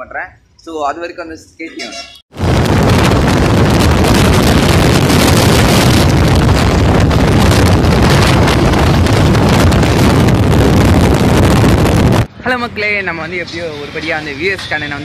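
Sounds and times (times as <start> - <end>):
wind buffeting microphone: 2.3 - 12.3
road noise: 2.4 - 15.0
motorcycle running: 3.1 - 12.3.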